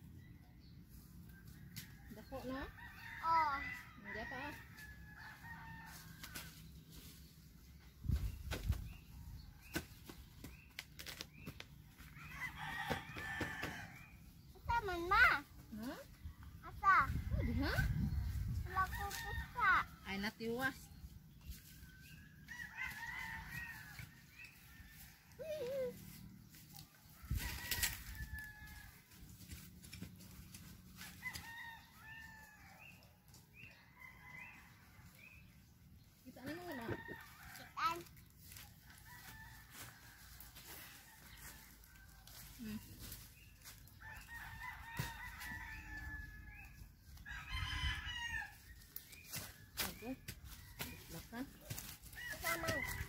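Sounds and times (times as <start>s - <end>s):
roosters crowing: 1.6s - 6.6s, 12.0s - 15.4s, 21.9s - 35.4s, 36.4s - 53.0s
rooster crowing: 52.2s - 53.0s.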